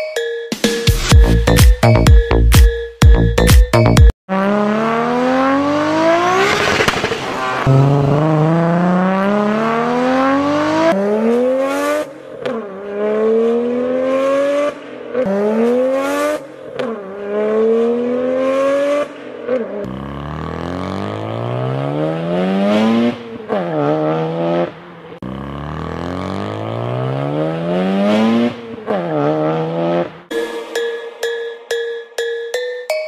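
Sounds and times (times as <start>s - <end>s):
car engine accelerating: 4.3s - 30.4s.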